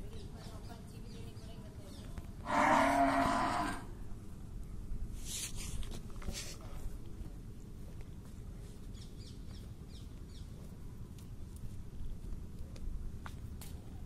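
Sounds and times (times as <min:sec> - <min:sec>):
buffalo mooing: 0:02.4 - 0:03.9.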